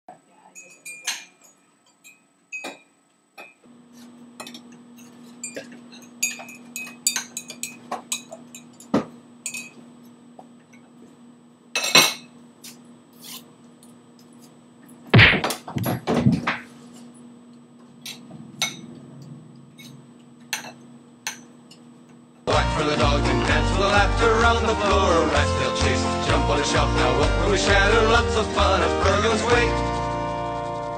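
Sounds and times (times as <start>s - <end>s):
dishes and cutlery clinking: 0.6s - 3.6s, 4.4s - 9.8s, 11.8s - 12.8s
steady low hum: 2.8s - 28.7s
heavy thumps: 15.1s - 16.7s.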